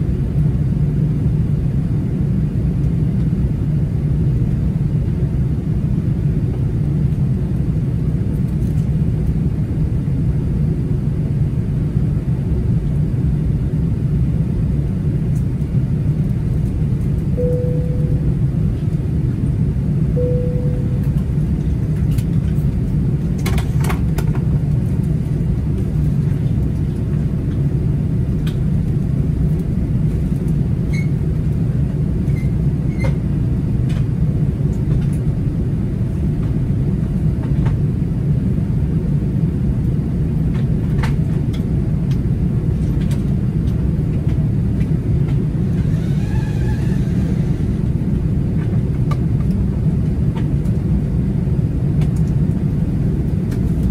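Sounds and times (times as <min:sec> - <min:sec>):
airplane cabin engine rumble: 0:00.0 - 0:53.9
short tone: 0:17.4 - 0:18.6, 0:20.2 - 0:21.4.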